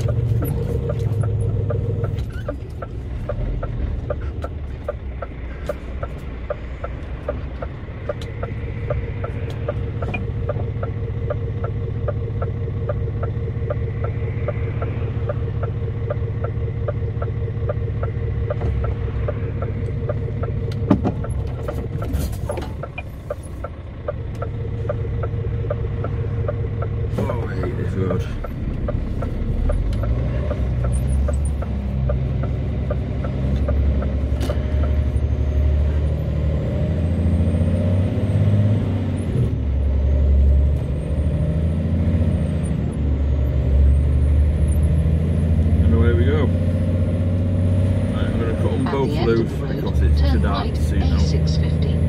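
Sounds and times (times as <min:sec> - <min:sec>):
diesel engine drone: 0:00.0 - 0:52.0.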